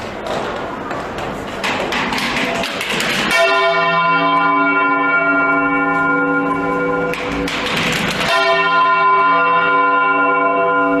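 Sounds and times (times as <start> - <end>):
large bell ringing: 3.2 - 11.0.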